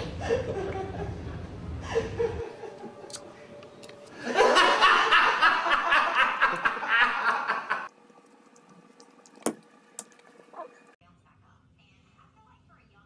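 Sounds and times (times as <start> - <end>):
man laughing hard: 4.2 - 7.9.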